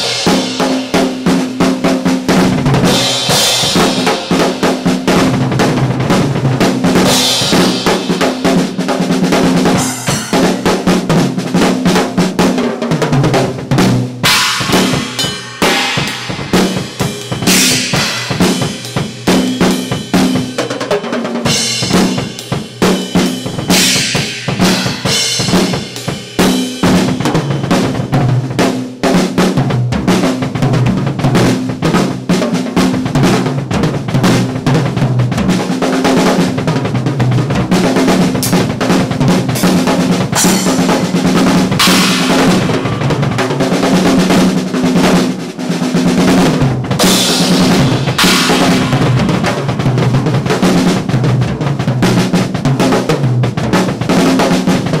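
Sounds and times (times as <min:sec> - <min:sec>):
cymbal crashes: 0:00.0 - 0:01.2, 0:09.7 - 0:11.2, 0:14.2 - 0:20.6, 0:21.5 - 0:28.0, 0:39.6 - 0:44.0, 0:47.0 - 0:50.5
bass drum and snare hits: 0:00.0 - 0:11.9, 0:13.6 - 0:20.5, 0:21.7 - 0:28.2, 0:37.5 - 0:44.6, 0:46.4 - 0:53.0.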